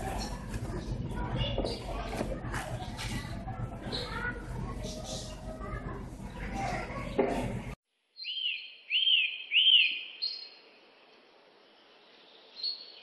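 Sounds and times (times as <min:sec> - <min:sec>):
bird chirping: 0:08.2 - 0:13.0.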